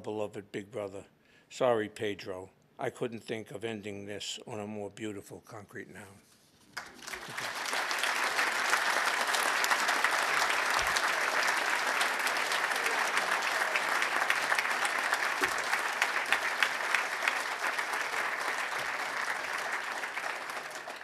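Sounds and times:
audience applauding: 6.8s - 21.0s.

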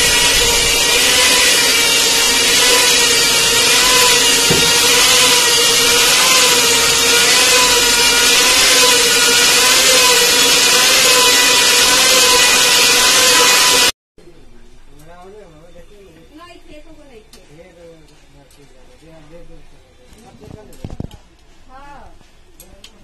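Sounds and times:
boring machine whining: 0.0s - 14.0s.

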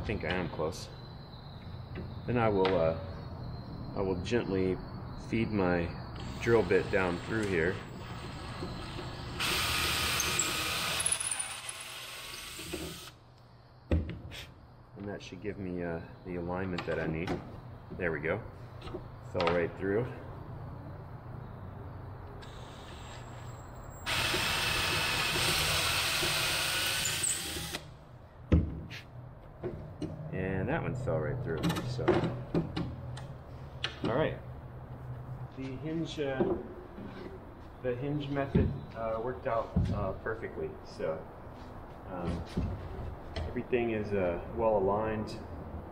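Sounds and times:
cordless drill drilling into wood: 8.0s - 13.2s, 24.1s - 27.8s.

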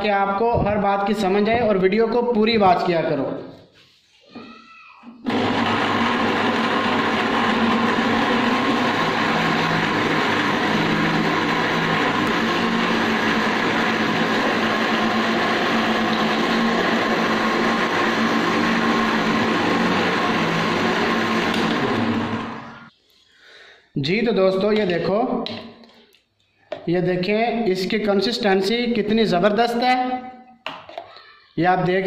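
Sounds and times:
electric blender running: 5.2s - 22.9s.

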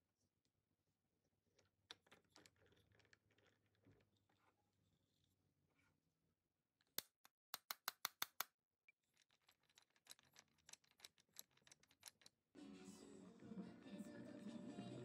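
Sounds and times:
background music: 12.6s - 15.0s.

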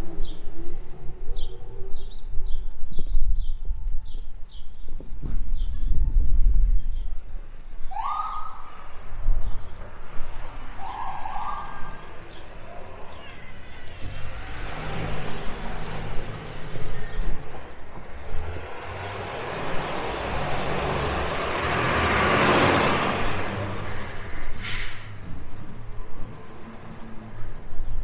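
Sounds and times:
vehicle passing: 8.6s - 28.0s.

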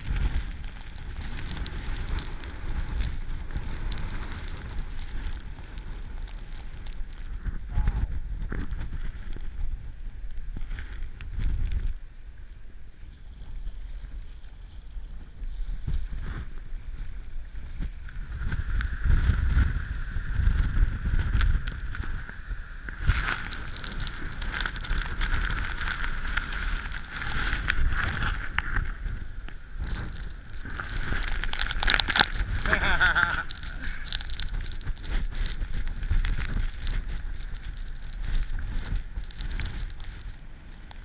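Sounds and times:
storm wind buffeting microphone: 0.0s - 41.0s
surf breaking on beach: 22.9s - 41.0s.

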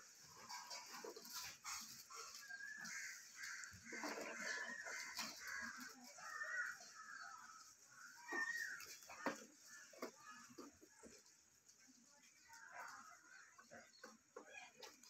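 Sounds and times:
crows cawing: 1.4s - 10.8s.

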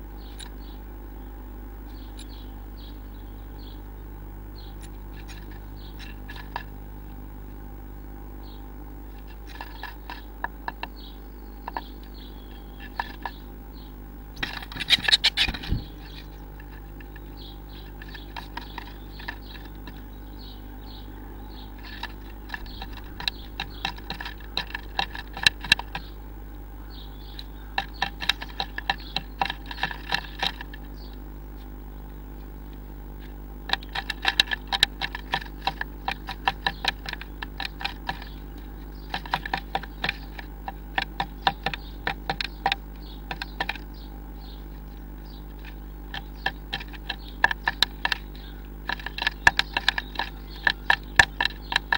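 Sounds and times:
steady low hum: 0.0s - 51.9s
bird tapping and scratching wood: 4.8s - 6.8s, 9.1s - 11.0s, 11.6s - 13.4s, 14.4s - 20.3s, 21.6s - 26.2s, 27.2s - 31.8s, 32.7s - 51.9s.

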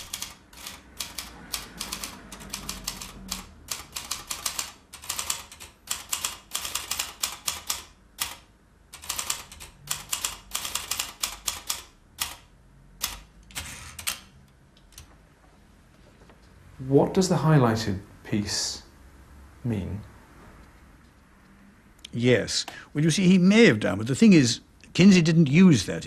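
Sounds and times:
typewriter keys clacking: 0.0s - 12.4s, 13.0s - 14.3s.

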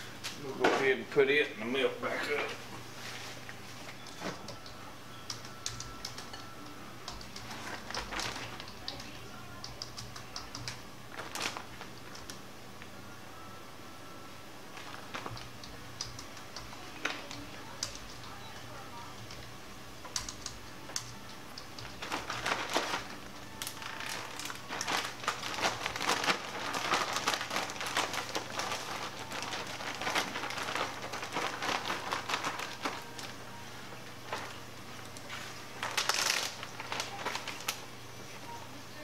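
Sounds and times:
plastic bag crinkling and rustling: 7.4s - 9.1s, 11.1s - 12.3s, 14.7s - 15.6s, 21.8s - 37.9s.

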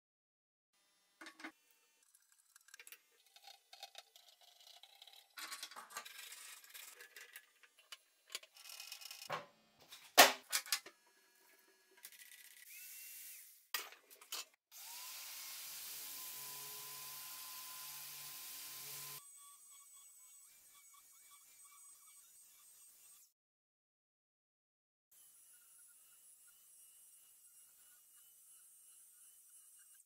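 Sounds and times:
metal parts clicking and clinking: 2.5s - 9.3s
angle grinder whirring: 11.3s - 13.7s, 14.7s - 23.3s.

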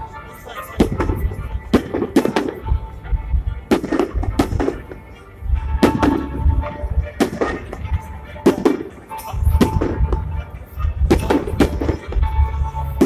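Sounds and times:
firework shells bursting: 3.7s - 10.3s.

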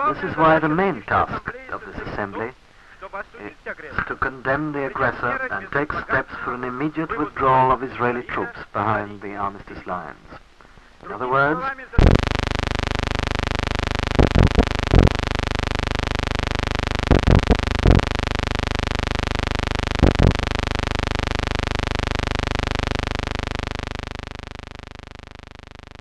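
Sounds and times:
loud buzzing hum: 12.0s - 26.0s.

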